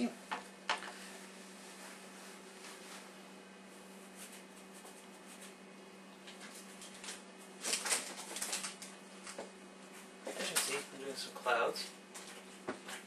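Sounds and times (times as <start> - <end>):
faint steady hum: 0.0 - 13.0
paintbrush scrubbing canvas: 3.7 - 5.6.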